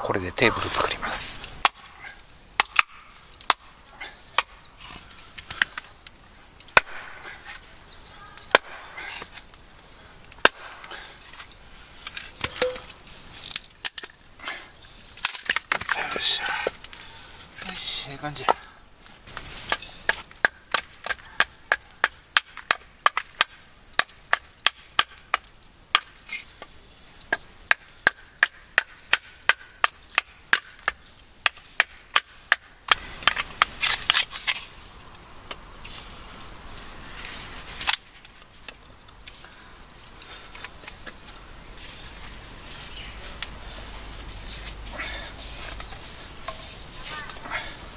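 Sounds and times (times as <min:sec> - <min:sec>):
hatchet chopping wood: 0:02.6 - 0:03.7, 0:06.7 - 0:07.3, 0:08.5 - 0:09.3, 0:10.4 - 0:11.0, 0:19.7 - 0:26.2, 0:27.3 - 0:33.8.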